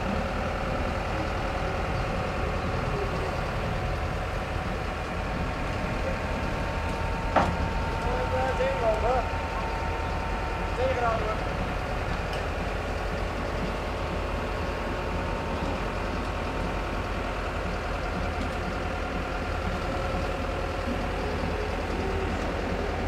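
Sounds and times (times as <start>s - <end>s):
crane diesel engine droning: 0.0s - 23.0s.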